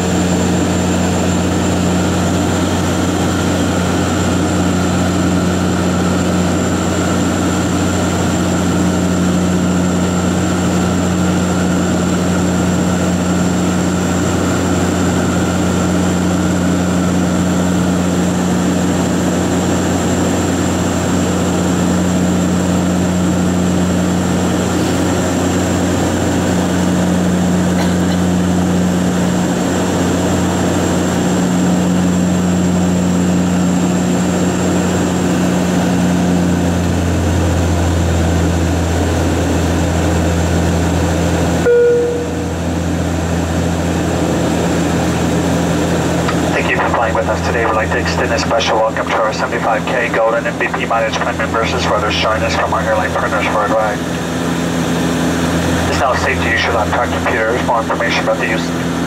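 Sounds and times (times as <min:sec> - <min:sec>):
turboprop cabin drone: 0:00.0 - 0:59.0
short tone: 0:41.6 - 0:42.8.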